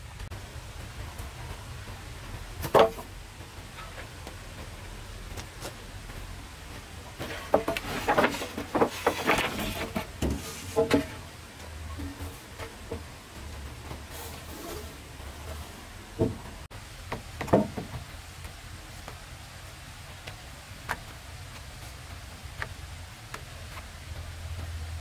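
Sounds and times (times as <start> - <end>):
wood knocking and clattering: 2.6 - 3.1, 7.2 - 13.2, 16.2 - 18.1
wood scraping: 2.6 - 3.1, 6.7 - 16.7.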